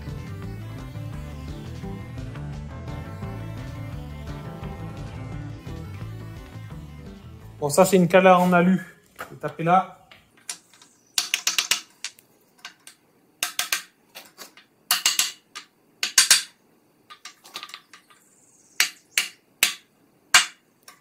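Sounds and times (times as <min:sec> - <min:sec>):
hammer striking metal block: 0:18.8 - 0:20.6.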